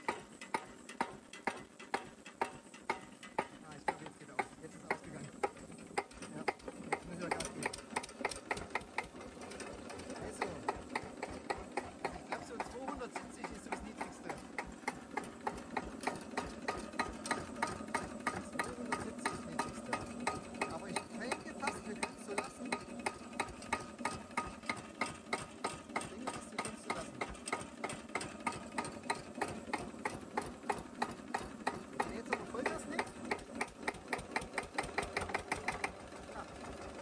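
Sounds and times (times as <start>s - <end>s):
diesel engine knocking at idle: 0.0s - 37.0s.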